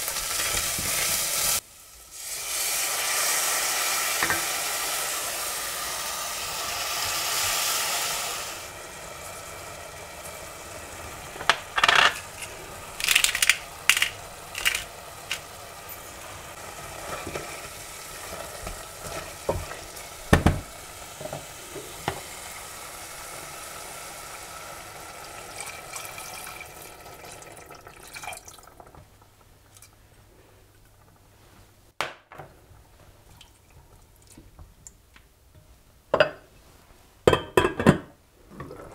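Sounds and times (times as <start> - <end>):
meat sizzling in a pot: 0.0 - 29.0.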